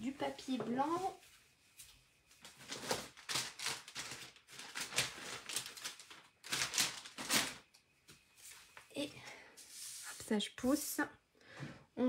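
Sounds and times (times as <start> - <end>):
paper rustling: 2.3 - 7.7.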